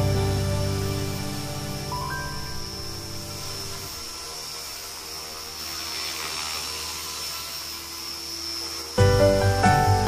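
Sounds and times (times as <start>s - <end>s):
rc helicopter motor whine: 0.0s - 10.0s
rotor hum: 0.0s - 10.0s.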